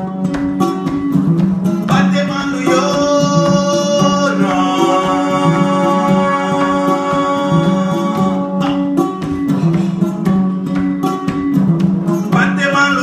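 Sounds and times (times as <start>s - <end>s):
ngoni plucking low figure: 0.0s - 13.0s.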